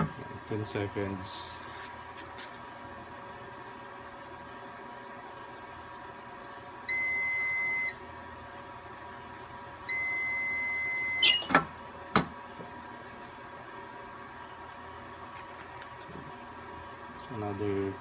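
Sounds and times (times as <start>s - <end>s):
heat press timer beeping: 6.9s - 8.0s, 9.9s - 11.5s.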